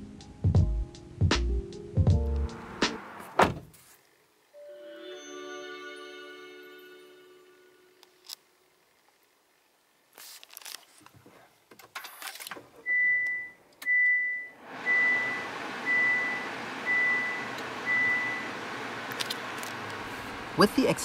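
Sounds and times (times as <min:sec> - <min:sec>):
car chime beeping: 0:12.8 - 0:18.7.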